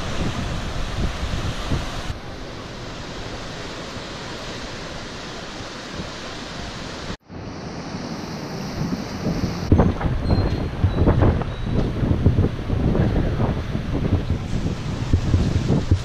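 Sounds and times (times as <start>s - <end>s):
wind on microphone: 0.0s - 2.2s, 5.6s - 16.0s
ocean surf breaking: 0.0s - 16.0s.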